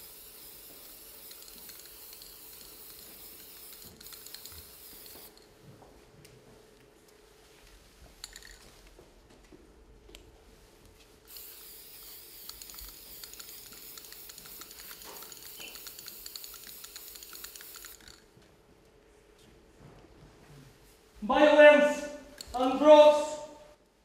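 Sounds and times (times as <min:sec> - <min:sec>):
aerosol spray can hissing: 0:00.0 - 0:05.4, 0:11.3 - 0:18.2.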